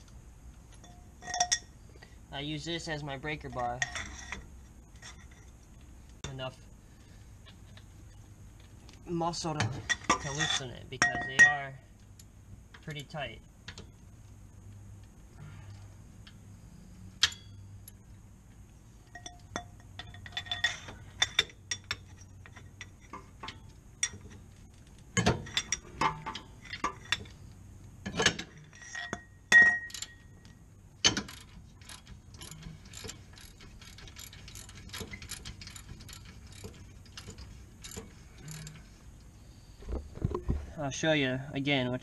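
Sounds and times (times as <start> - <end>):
metal tool clinks and clanks: 0.7 - 1.7, 3.4 - 5.6, 9.6 - 11.8, 19.0 - 24.4, 28.0 - 38.9.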